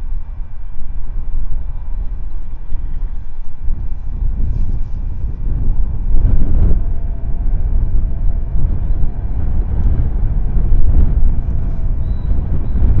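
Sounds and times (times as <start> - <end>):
wind buffeting microphone: 0.0 - 13.0
faint high whistle: 11.6 - 13.0.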